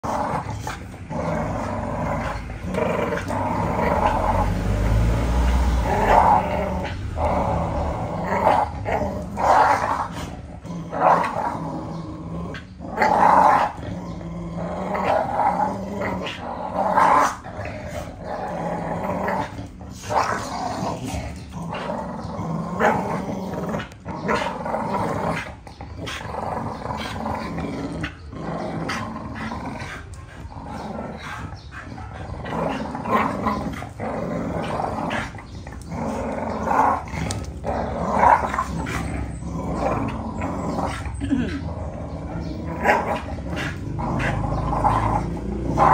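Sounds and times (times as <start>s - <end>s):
dogs growling in play: 0.0s - 45.9s.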